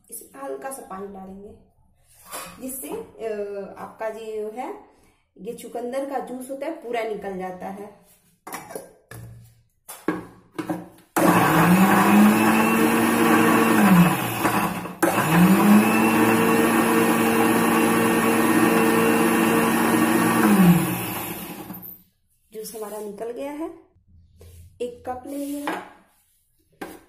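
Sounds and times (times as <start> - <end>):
mixer grinder motor grinding: 11.2 - 22.0.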